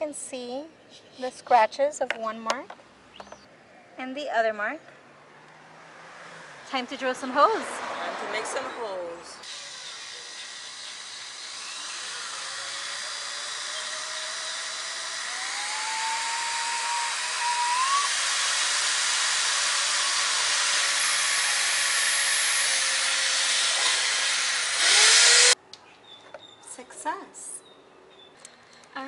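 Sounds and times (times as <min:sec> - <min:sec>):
electric drill boring through plastic: 0:09.4 - 0:25.6.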